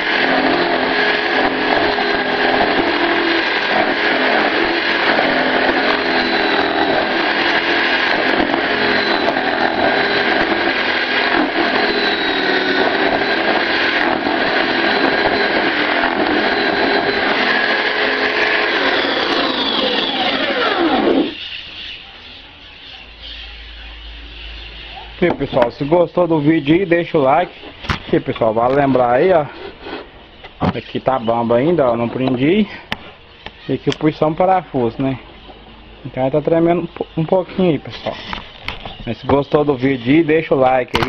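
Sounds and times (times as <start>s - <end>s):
drill boring into wood: 0.0s - 22.0s, 33.4s - 41.0s
drill winding down: 0.0s - 22.0s.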